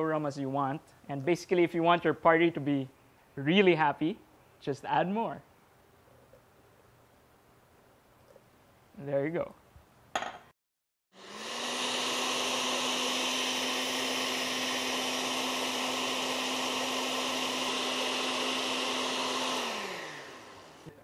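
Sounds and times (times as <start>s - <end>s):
blender running: 11.1s - 21.0s.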